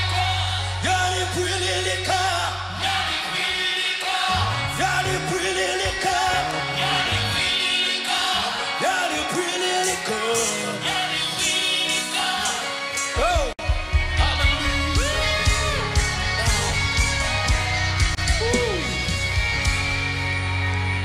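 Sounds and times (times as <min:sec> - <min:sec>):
bass line: 0:00.0 - 0:03.2, 0:04.3 - 0:07.6, 0:13.2 - 0:21.0
people singing: 0:00.0 - 0:19.0
band playing worship music: 0:00.0 - 0:21.0.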